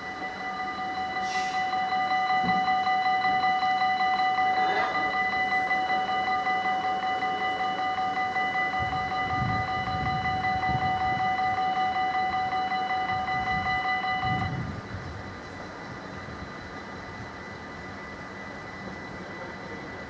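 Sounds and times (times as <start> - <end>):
level crossing warning bell: 0.0 - 20.0.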